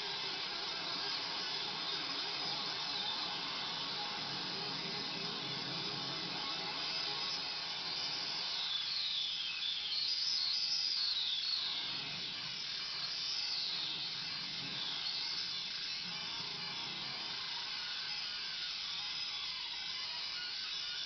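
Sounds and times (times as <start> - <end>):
hissing synthesizer filter sweeps: 0.0 - 9.5.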